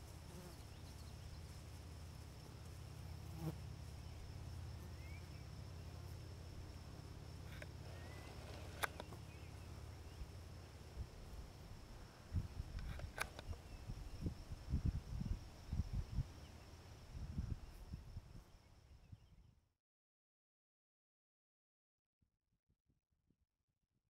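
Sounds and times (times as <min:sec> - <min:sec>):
high insect drone: 0:00.0 - 0:19.4
sharp clicks: 0:07.5 - 0:09.2, 0:12.7 - 0:13.6.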